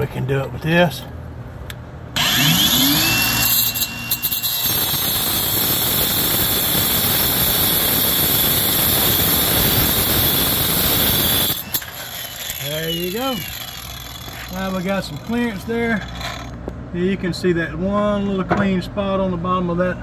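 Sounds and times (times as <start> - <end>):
angle grinder whine: 2.2 - 16.6
grinder cutting metal: 2.2 - 16.6.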